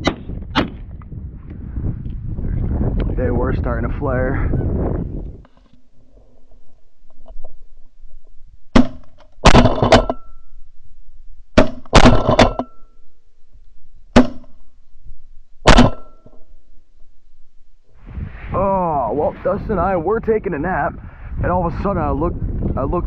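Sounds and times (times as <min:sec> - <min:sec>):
shotgun blasts: 0:00.0 - 0:00.9, 0:08.8 - 0:10.2, 0:11.6 - 0:12.6, 0:15.6 - 0:16.2.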